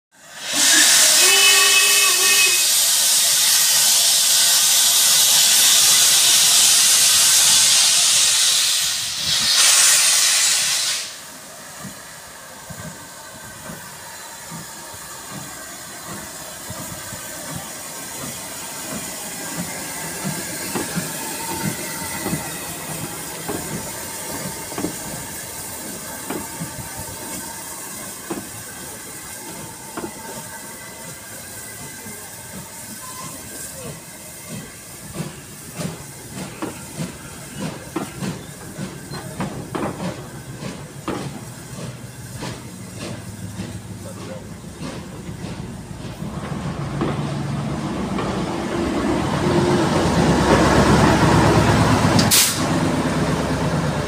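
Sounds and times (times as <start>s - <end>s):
loud steam hissing: 0.1s - 54.0s
steam locomotive whistle: 0.2s - 11.3s
steam exhaust chuffs: 0.3s - 54.0s
train clanking: 2.7s - 54.0s.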